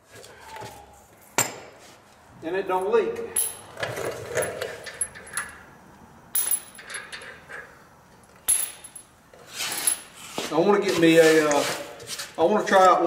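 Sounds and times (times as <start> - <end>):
metal lug nuts clinking: 3.2 - 5.7, 6.3 - 10.2.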